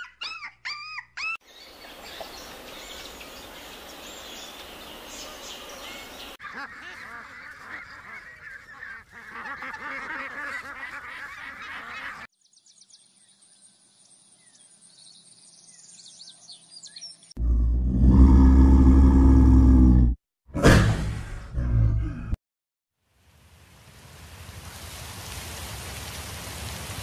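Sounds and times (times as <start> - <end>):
ducks quacking: 6.4 - 12.3
loud low-pitched animal call: 17.4 - 22.4.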